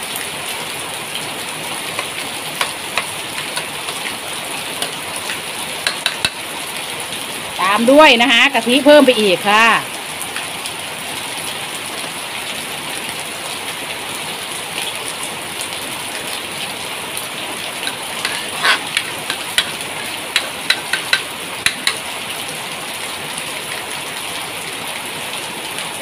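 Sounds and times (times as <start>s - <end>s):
curry hissing in a pan: 1.0s - 6.7s, 16.8s - 22.3s
utensil knocking against pan: 2.0s - 3.7s, 5.8s - 6.4s, 17.8s - 22.0s.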